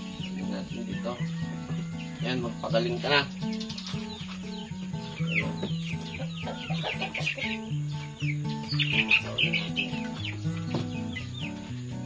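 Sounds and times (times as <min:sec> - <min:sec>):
chicks peeping and clucking: 0:00.0 - 0:12.0
slow background music: 0:00.0 - 0:12.0.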